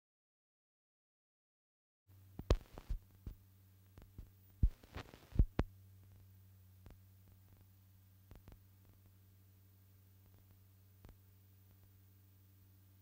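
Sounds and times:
steady low hum: 0:02.1 - 0:13.0
film surface clicks and pops: 0:02.4 - 0:03.4, 0:08.3 - 0:09.1.

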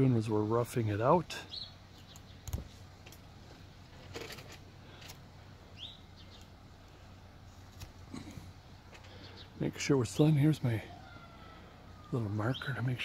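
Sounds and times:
low outdoor background: 0:00.0 - 0:13.0
rising bird chirp: 0:01.4 - 0:02.8, 0:04.8 - 0:07.2, 0:09.0 - 0:13.0.

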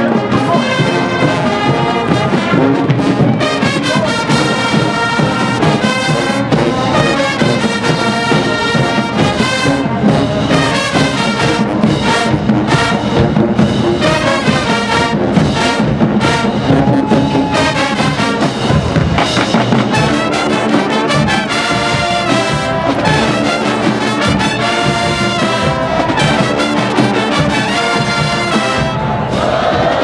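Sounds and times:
drums: 0:00.0 - 0:30.0
marching band playing: 0:00.0 - 0:30.0
trumpets and trombones: 0:00.0 - 0:30.0.

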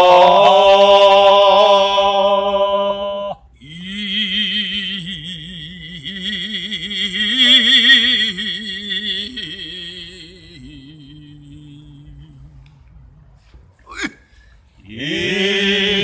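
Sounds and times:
man chanting long tones: 0:00.0 - 0:14.1
breath: 0:14.2 - 0:14.8.

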